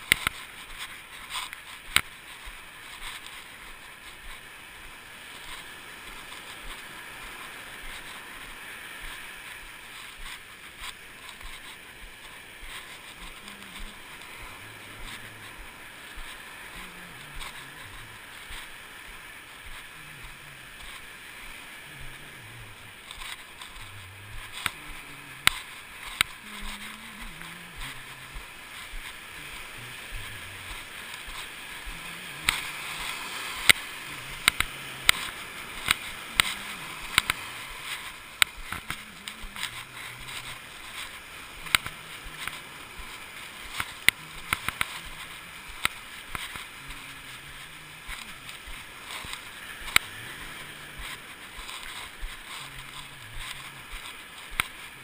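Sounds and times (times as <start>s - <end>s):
ocean surf washing: 0.0s - 55.0s.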